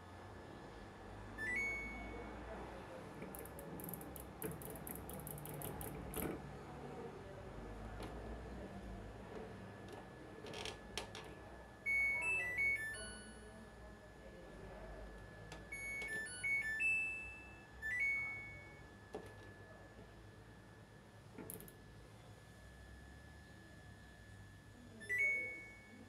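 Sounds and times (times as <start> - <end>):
washing machine electronic chime tune: 1.4 - 2.4, 11.8 - 13.5, 15.7 - 19.8, 25.0 - 26.0.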